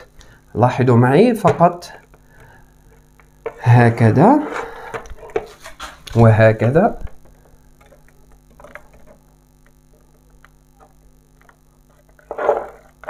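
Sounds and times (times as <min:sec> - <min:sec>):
steady low hum: 0:00.0 - 0:13.0
brushing scrape: 0:04.4 - 0:06.0, 0:11.9 - 0:13.0.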